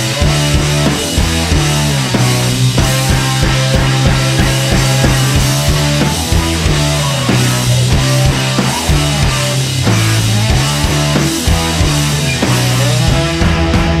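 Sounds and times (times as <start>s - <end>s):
sustained low notes: 2.6s - 12.2s
drum beat: 2.8s - 12.8s.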